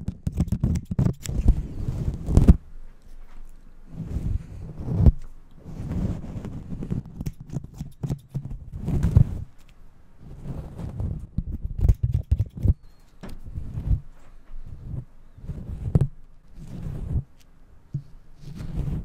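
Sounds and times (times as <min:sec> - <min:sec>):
grooming tool clicks and snips: 0:00.0 - 0:01.6, 0:06.9 - 0:09.8, 0:11.4 - 0:13.4
rustling on microphone cover: 0:00.0 - 0:19.0.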